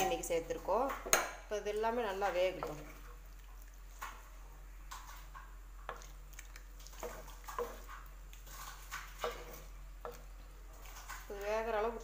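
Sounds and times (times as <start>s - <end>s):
spoon stirring watery curry: 1.8s - 12.0s
spoon knocking and scraping pot: 6.9s - 10.4s.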